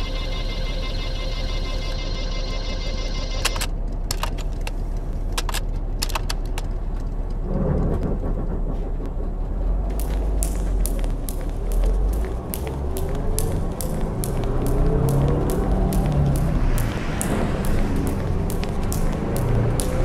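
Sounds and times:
steady humming tone: 0:00.0 - 0:03.4, 0:09.9 - 0:20.0
road and engine rumble: 0:03.4 - 0:20.0.

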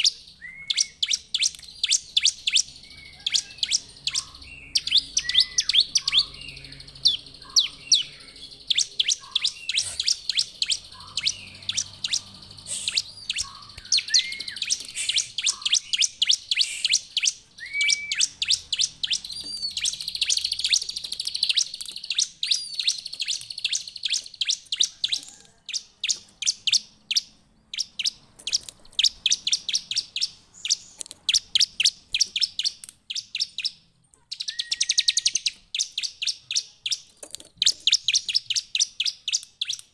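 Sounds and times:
lower slurred whistles: 0:00.0 - 0:20.8, 0:21.4 - 0:25.4, 0:34.4 - 0:36.1
bird singing high chirps: 0:00.0 - 0:39.9.

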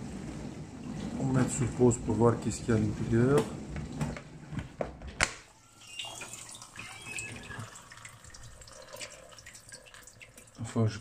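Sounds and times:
water dripping and trickling: 0:05.7 - 0:11.0.

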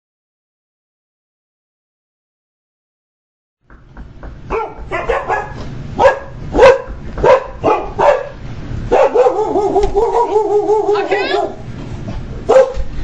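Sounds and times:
dog barking: 0:04.5 - 0:11.6, 0:12.4 - 0:12.9.

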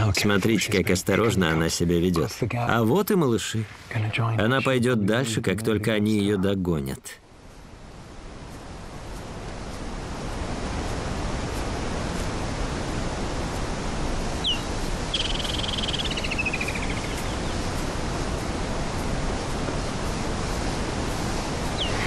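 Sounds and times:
hiss-like bush ambience: 0:00.0 - 0:22.0
bird whistle and warbling trill: 0:14.4 - 0:17.6, 0:21.8 - 0:22.0.

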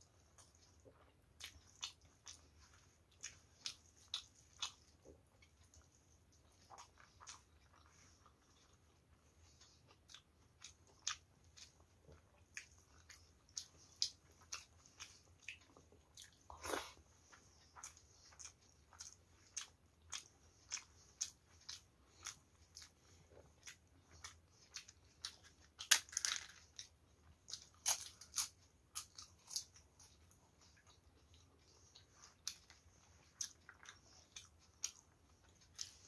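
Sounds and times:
food squelch: 0:00.2 - 0:25.6.

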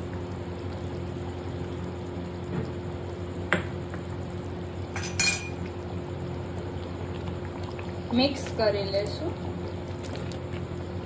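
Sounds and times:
steady low hum: 0:00.0 - 0:11.0
metal spoon clinking on a pan: 0:05.0 - 0:05.6.

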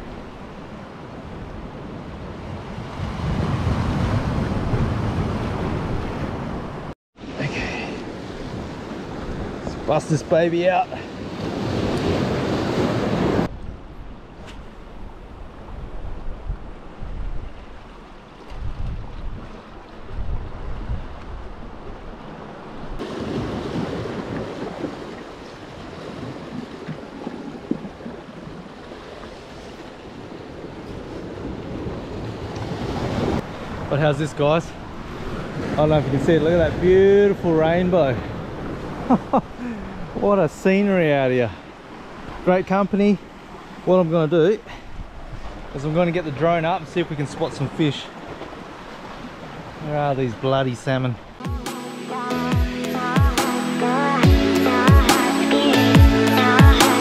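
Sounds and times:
surf on rocky shore: 0:00.0 - 0:57.0
wind buffeting microphone: 0:11.2 - 0:33.9
waves surging among rocks: 0:21.5 - 0:37.0.

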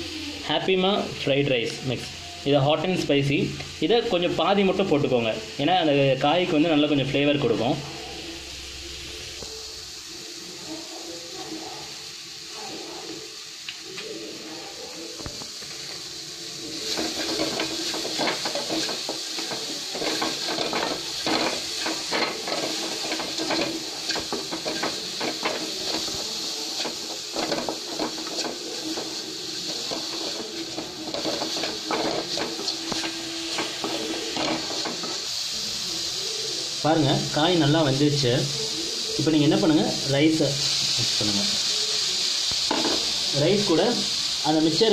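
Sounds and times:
vegetables sizzling in oil: 0:00.0 - 0:44.9
spatula scraping pan: 0:16.7 - 0:35.3.

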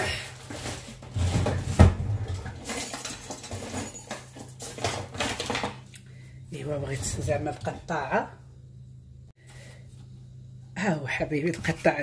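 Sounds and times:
kitchen utensils clattering: 0:00.2 - 0:05.8.

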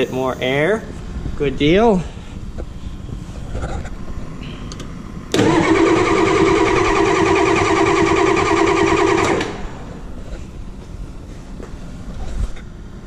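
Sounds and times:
starter motor cranking engine: 0:05.3 - 0:09.8.

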